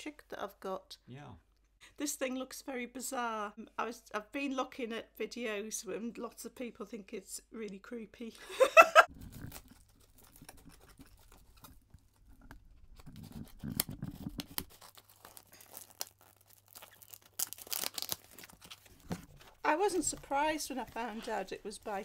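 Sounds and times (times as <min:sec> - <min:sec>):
tape ripping: 0:09.1 - 0:22.0
scissors scraping along packing tape: 0:13.0 - 0:19.0.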